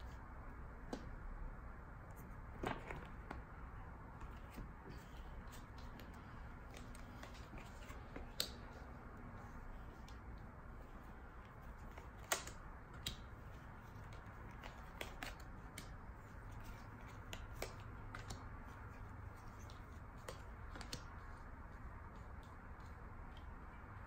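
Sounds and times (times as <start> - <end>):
low room hum: 0.0 - 24.0
cards clicking and tapping on table: 19.6 - 21.2.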